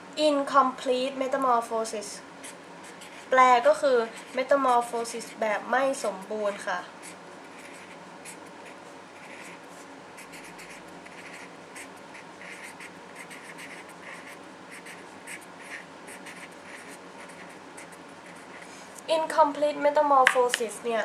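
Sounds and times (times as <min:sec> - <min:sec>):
pen strokes writing on paper: 0:07.0 - 0:18.7.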